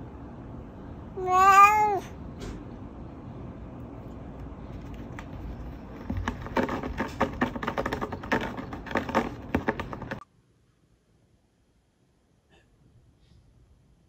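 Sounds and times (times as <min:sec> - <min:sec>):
cat clicking against window frame: 0:04.9 - 0:10.2.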